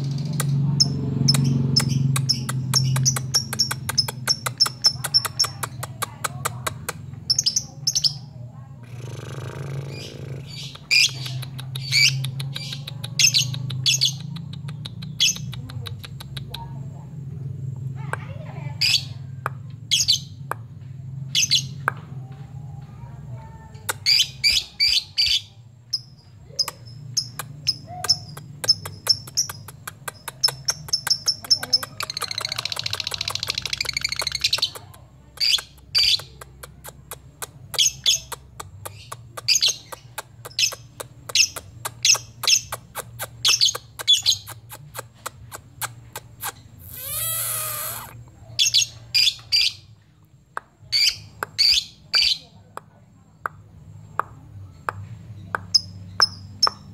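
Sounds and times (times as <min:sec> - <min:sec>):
rapid chattering trill: 0:00.0 - 0:08.2, 0:26.5 - 0:48.2
lovebird chirping: 0:00.0 - 0:16.7, 0:23.8 - 0:50.0, 0:54.7 - 0:56.9
harsh noisy bird call: 0:46.6 - 0:48.9.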